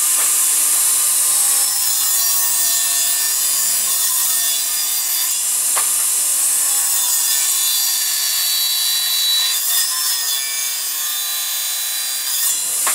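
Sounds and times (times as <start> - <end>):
circular saw cutting wood: 0.0 - 12.9
saw blade catching: 5.8 - 6.1.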